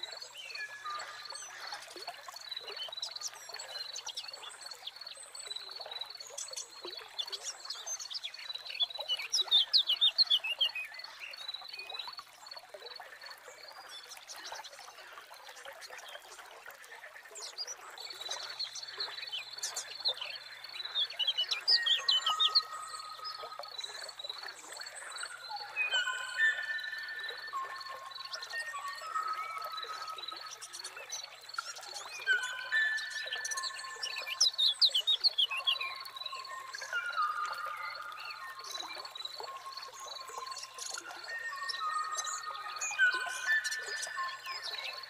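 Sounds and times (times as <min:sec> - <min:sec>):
trickling water: 0:00.0 - 0:45.0
birds chirping: 0:18.2 - 0:45.0.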